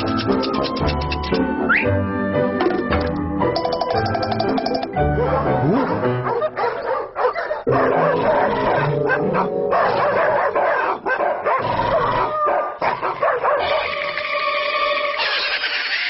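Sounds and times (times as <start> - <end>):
upbeat cartoon music: 0.0 - 6.7
yelping bark-like vocal cries: 5.2 - 14.1.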